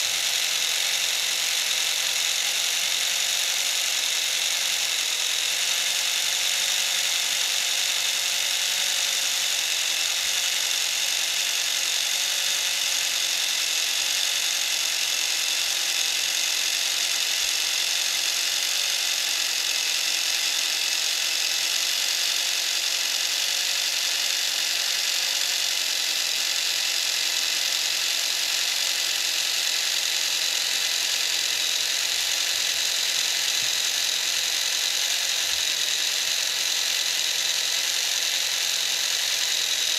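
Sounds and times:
small electric motor whirring: 0.0 - 39.9.

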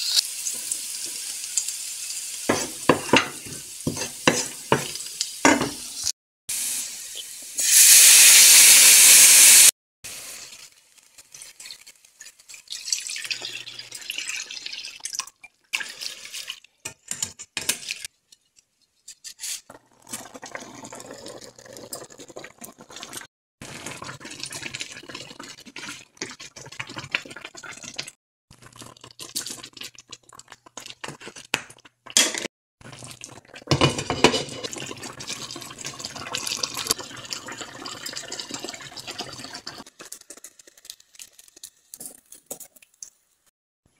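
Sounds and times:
water poured into a pan: 0.0 - 16.8, 19.8 - 32.2, 32.8 - 43.5
sauce bubbling: 19.8 - 32.2, 32.8 - 43.5.

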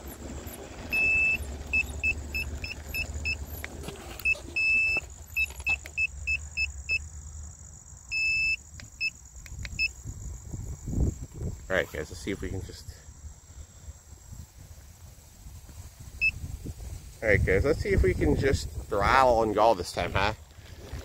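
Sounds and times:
short high beeps: 0.9 - 3.4, 4.2 - 7.0, 8.1 - 9.1
long beeps: 0.9 - 3.5, 4.2 - 7.1, 8.1 - 9.2.

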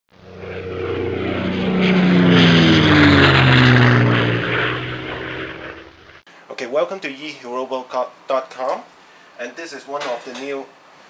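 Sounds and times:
airplane flying by: 0.1 - 6.3.

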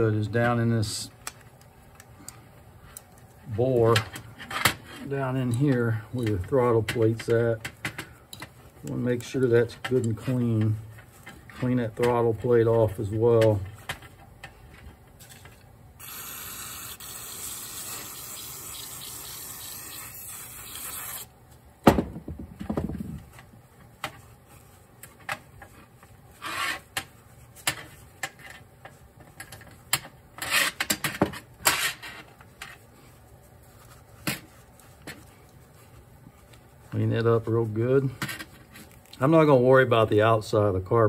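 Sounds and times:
aerosol spray hissing: 16.0 - 21.3.

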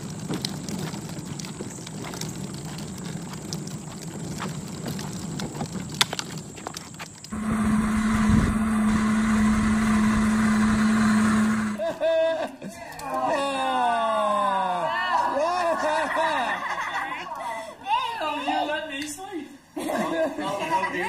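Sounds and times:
toy wagon rolling on concrete: 0.0 - 13.4
electric toy car motor hum: 4.3 - 11.9.

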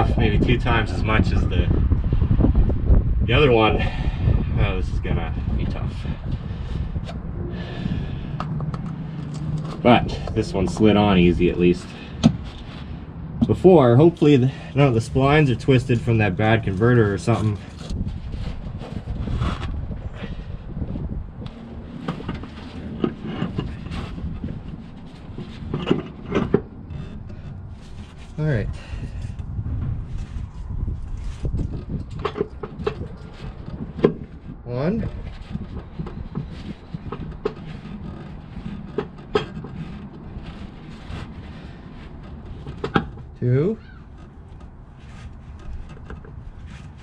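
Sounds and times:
steady low hum: 0.0 - 47.0
wind buffeting microphone: 0.0 - 47.0
metallic knocks and clunks: 12.1 - 12.6.

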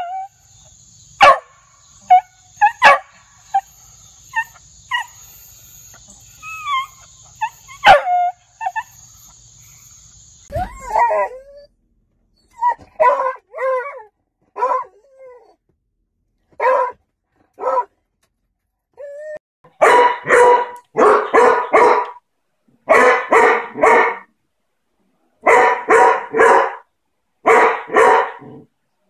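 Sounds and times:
dogs barking: 1.2 - 3.7, 7.5 - 8.9, 13.0 - 13.8, 14.6 - 14.9, 16.6 - 17.0, 17.6 - 17.9, 19.8 - 22.2, 22.9 - 24.3, 25.4 - 26.8, 27.4 - 28.6
dog whining: 3.5 - 11.8.

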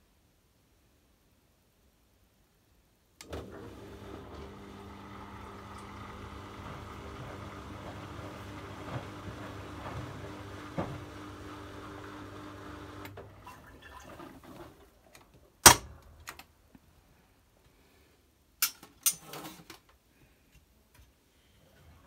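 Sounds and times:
washing machine humming: 3.2 - 15.0.

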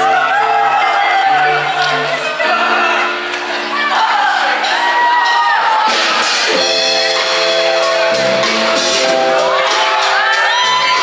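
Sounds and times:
funk band playing: 1.8 - 11.0
sliding melodic line: 2.6 - 11.0.

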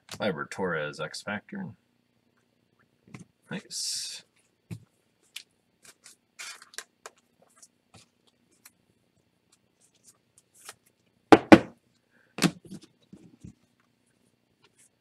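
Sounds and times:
sharp knocks on desk: 11.3 - 11.7.

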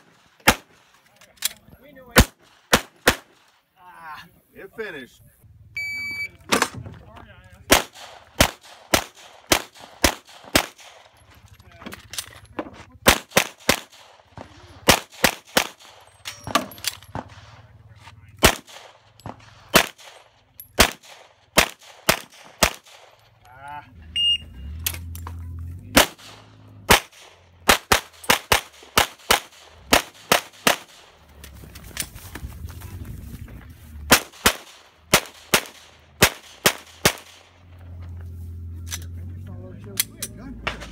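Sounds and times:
pistol shots: 0.0 - 0.9, 2.1 - 3.6, 7.7 - 11.2, 13.0 - 17.7, 18.4 - 23.3, 25.9 - 31.2, 34.1 - 37.6
shot timer beep: 5.8 - 6.4, 24.1 - 24.7.

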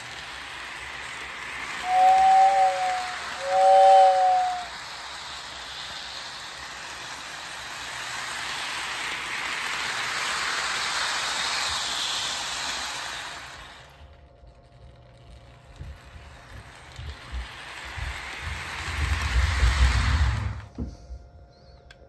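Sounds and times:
toy train two-tone whistle: 0.0 - 14.0
toy train running on track: 0.0 - 20.9.

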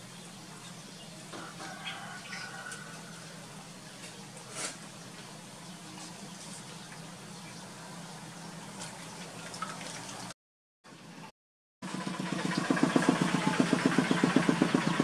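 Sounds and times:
faint water splashing: 8.6 - 10.4
chugging engine: 11.8 - 15.0.

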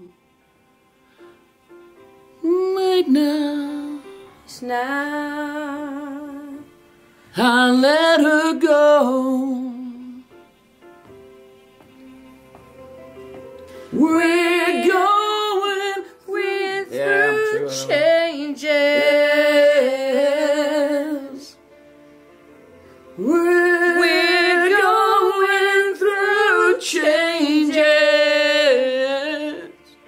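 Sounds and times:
quiet keyboard backing track: 0.0 - 15.7
woman singing ballad with vibrato: 2.4 - 6.7, 7.4 - 10.2, 13.9 - 21.6, 23.2 - 29.9.

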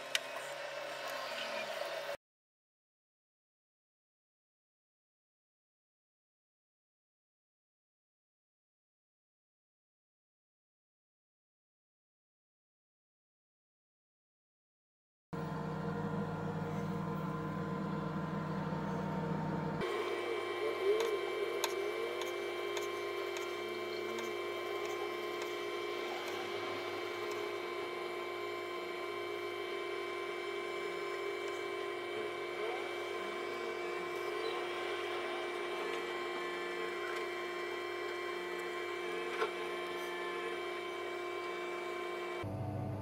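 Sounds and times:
steady hum: 15.4 - 43.0.

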